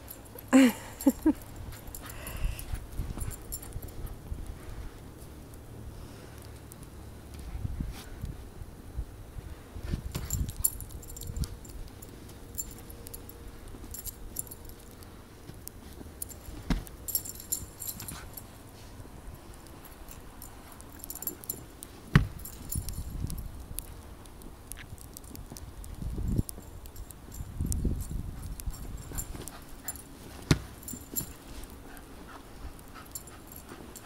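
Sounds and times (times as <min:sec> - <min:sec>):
dog collar tags jingling: 0:00.0 - 0:04.3, 0:10.2 - 0:15.1, 0:15.7 - 0:23.9, 0:25.2 - 0:34.0.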